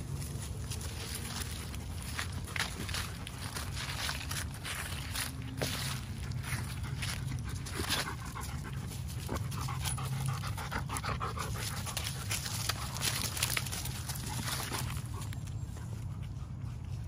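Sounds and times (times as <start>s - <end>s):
dry leaves crunching underfoot: 0.0s - 10.4s, 11.3s - 15.8s
dog panting: 6.2s - 17.0s.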